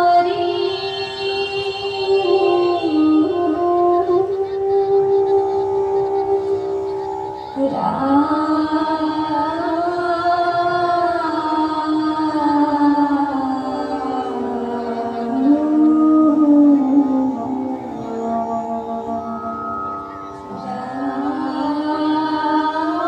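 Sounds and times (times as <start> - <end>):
woman singing: 0.0 - 6.9, 7.6 - 23.0
instrumental drone: 0.0 - 23.0.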